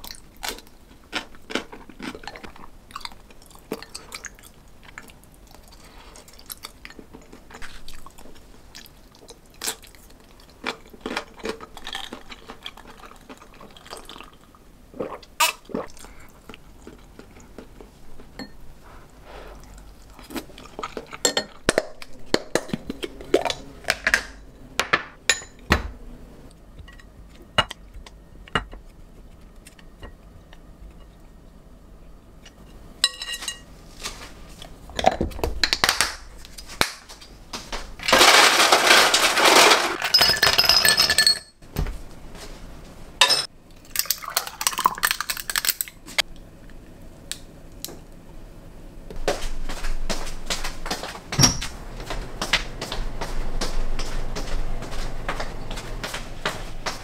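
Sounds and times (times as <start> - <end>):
chewing: 0.0 - 18.3, 19.6 - 23.7.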